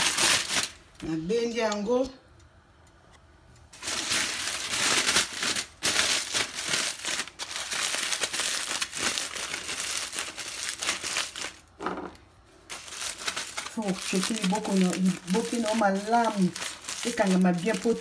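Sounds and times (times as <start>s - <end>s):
aluminium foil crinkling: 0.0s - 1.2s, 3.7s - 18.0s.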